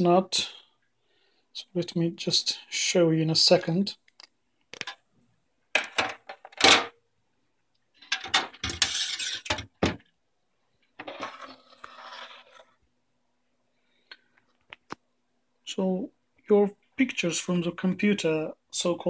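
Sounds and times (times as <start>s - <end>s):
scraping rustle: 11.0s - 12.8s.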